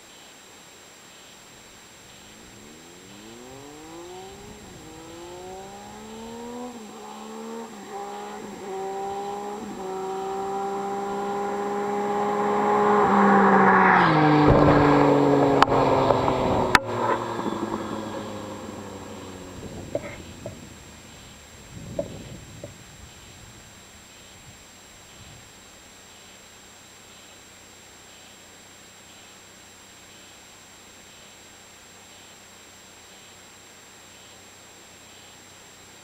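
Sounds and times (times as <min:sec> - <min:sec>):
motorcycle accelerating through gears: 0:02.1 - 0:23.3.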